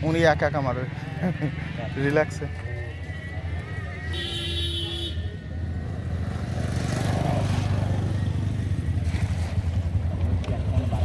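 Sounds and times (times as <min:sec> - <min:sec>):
water splashing and dripping: 0:08.7 - 0:10.6.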